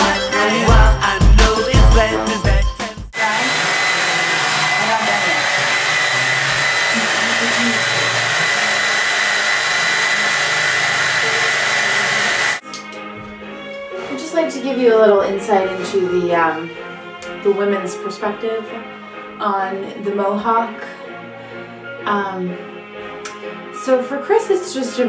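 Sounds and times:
music with heavy beat: 0.0 - 3.2
hair dryer blowing: 3.2 - 12.6.

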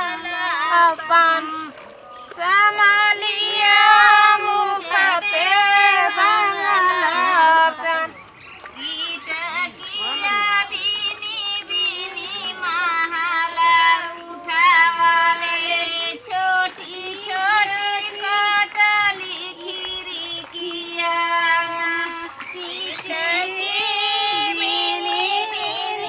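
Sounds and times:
women singing folk song: 0.0 - 26.0.

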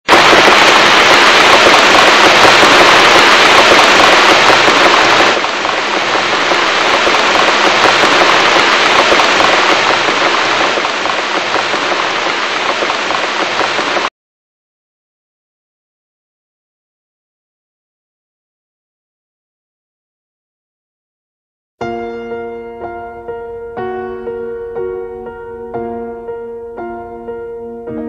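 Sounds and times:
loud rushing noise: 0.0 - 14.1.

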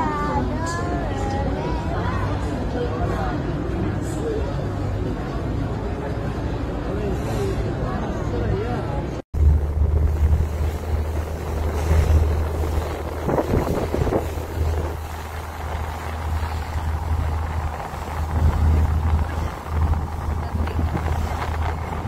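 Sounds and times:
boat engine droning: 9.4 - 22.0
wind buffeting microphone: 9.4 - 22.0.

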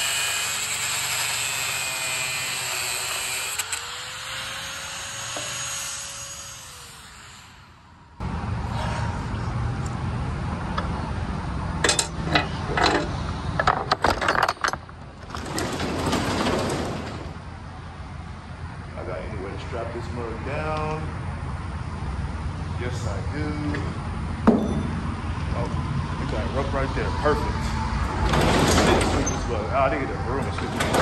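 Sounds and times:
power cutting tool whining: 0.0 - 8.0
metal clacks and rattles: 11.8 - 17.4, 28.1 - 29.6, 30.4 - 31.0.

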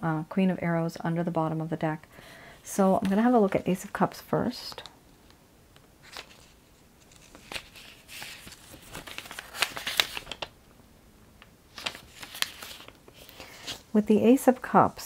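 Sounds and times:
paper rustling: 6.0 - 10.5, 11.7 - 14.0.

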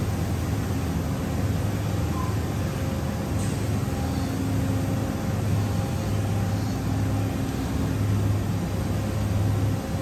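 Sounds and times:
low machinery hum: 0.0 - 10.0
faint steady tones: 1.4 - 10.0.

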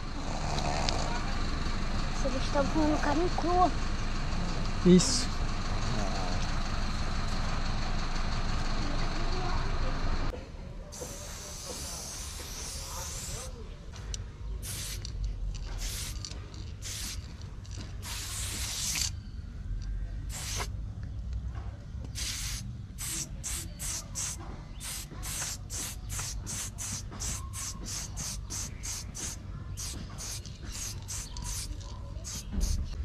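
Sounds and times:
spray bottle squirting: 10.9 - 13.6, 14.6 - 17.3, 18.0 - 19.2, 20.3 - 20.7, 22.1 - 33.0.

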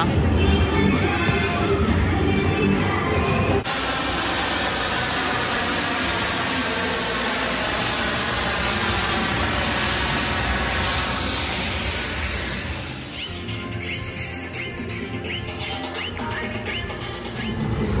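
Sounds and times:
snow machine hissing: 3.6 - 13.5.

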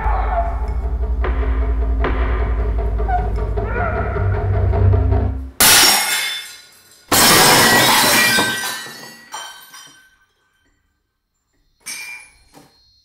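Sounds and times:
glass shards tinkling: 5.6 - 10.5, 11.8 - 12.6
glass shattering on tile floor: 5.6 - 10.6, 11.8 - 12.7.

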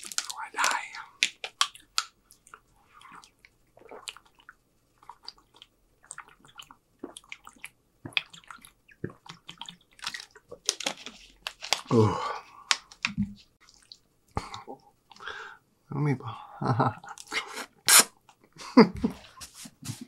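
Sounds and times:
person gulping water: 2.5 - 10.7, 13.6 - 15.3.

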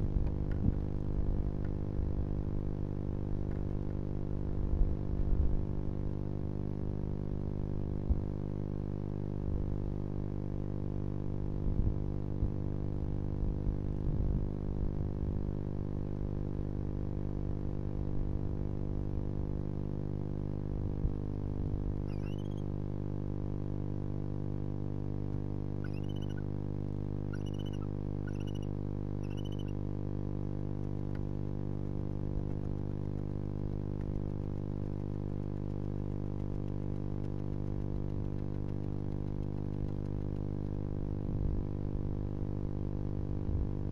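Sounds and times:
steady electrical hum: 0.0 - 43.9
short high chirping calls: 22.1 - 22.7, 25.8 - 26.5, 27.3 - 29.8.

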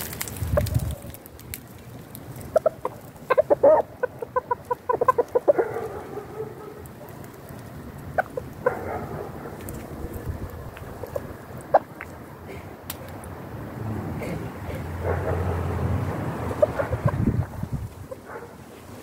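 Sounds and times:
chickens clucking: 2.5 - 12.2, 16.4 - 18.5.

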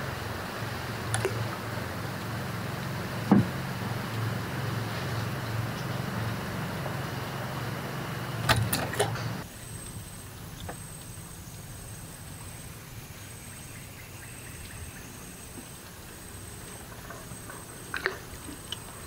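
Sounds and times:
low engine hum: 0.0 - 19.0.

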